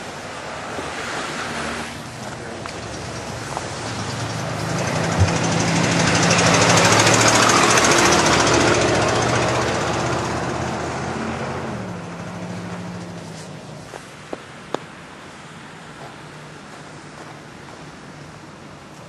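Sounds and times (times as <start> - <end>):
car driving past: 0.8 - 13.8.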